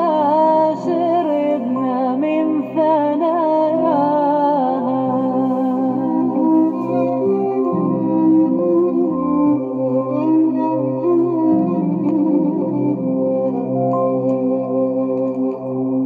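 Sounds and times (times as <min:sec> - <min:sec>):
slow song with vibrato melody: 0:00.0 - 0:16.0.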